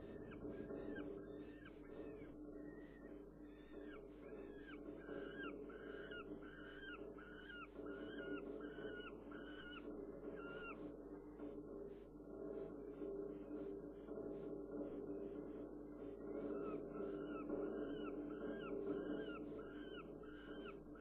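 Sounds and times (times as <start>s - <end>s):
juvenile falcon whining calls: 0.0s - 11.0s, 16.6s - 21.0s.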